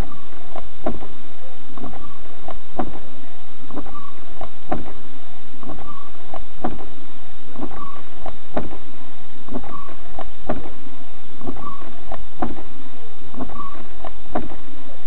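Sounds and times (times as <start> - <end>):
windshield wiper knocking: 0.0 - 1.2, 1.8 - 3.1, 3.7 - 5.0, 5.6 - 7.0, 7.6 - 8.9, 9.5 - 10.8, 11.4 - 14.7
wiper blade squeaking on glass: 1.8 - 3.1, 3.7 - 5.0, 5.6 - 6.9, 7.6 - 8.9, 9.5 - 10.8, 11.4 - 14.7.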